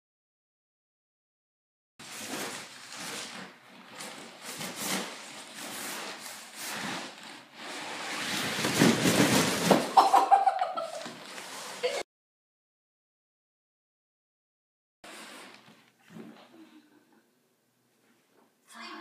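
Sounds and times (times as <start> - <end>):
rustling and scraping: 2.0 - 12.0, 15.0 - 16.6.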